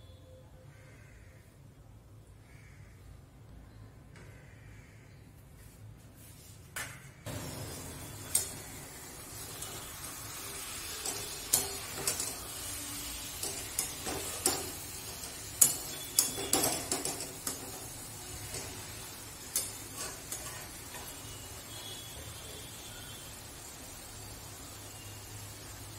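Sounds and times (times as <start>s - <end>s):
food sizzling: 7.3s - 25.9s
metal spatula scraping a pan: 9.4s - 21.9s.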